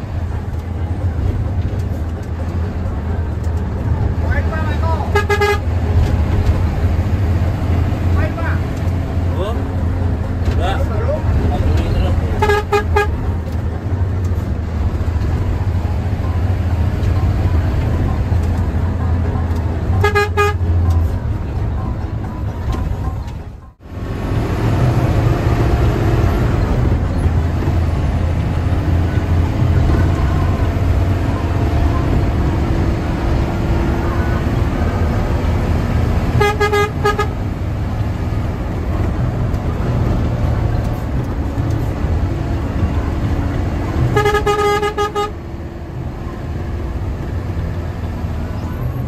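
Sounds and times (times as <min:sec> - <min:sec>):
bus diesel engine running: 0:00.0 - 0:49.0
horn blasts: 0:05.0 - 0:05.9, 0:12.3 - 0:13.3, 0:19.9 - 0:20.8, 0:36.3 - 0:37.4, 0:44.0 - 0:45.4.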